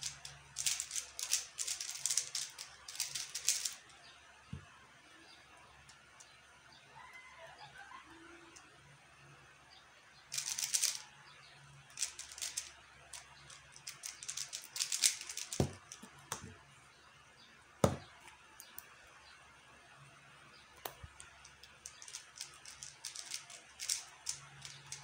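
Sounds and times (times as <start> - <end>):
puzzle cube clicking: 0.0 - 3.8, 13.8 - 16.4, 20.8 - 25.0
cube thumped on table: 15.6 - 16.5, 17.8 - 18.1.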